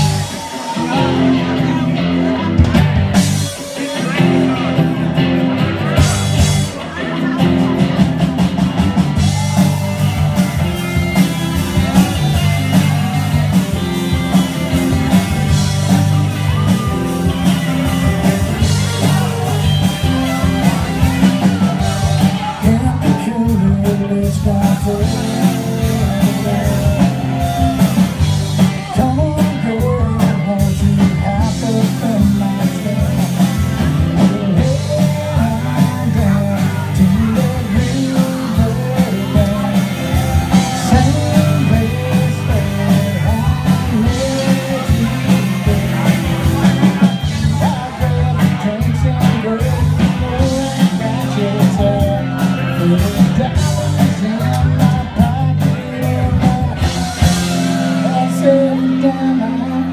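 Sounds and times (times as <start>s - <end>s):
country rock band playing: 0.0s - 59.9s.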